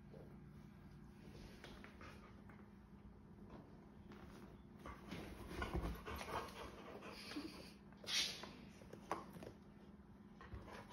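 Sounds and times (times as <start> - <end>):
dog panting and breathing: 4.8 - 7.8.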